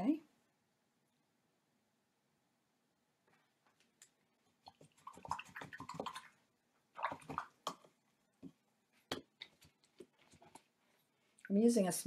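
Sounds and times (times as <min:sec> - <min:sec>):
paintbrush splashing in water jar: 0:04.0 - 0:11.4.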